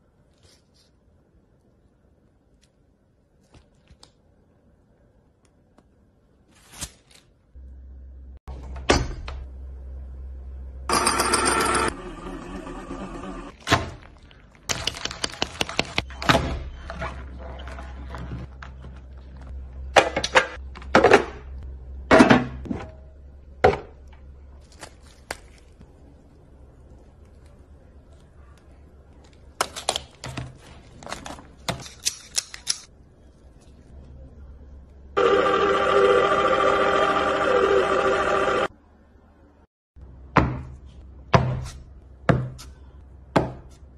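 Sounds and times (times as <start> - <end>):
low steady hum: 7.5 - 14.7, 16.1 - 31.7.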